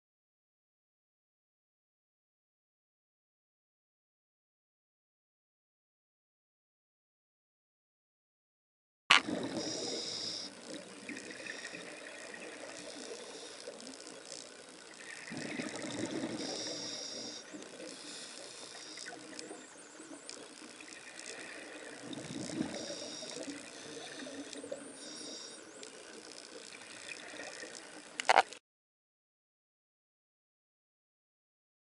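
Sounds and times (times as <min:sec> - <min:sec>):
water trickling and bubbling: 0:09.2 - 0:25.1, 0:25.8 - 0:28.2.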